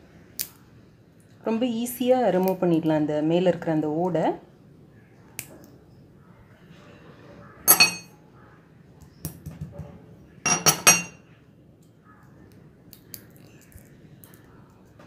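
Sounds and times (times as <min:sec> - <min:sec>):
seeds clicking on stone countertop: 0:12.5 - 0:15.0.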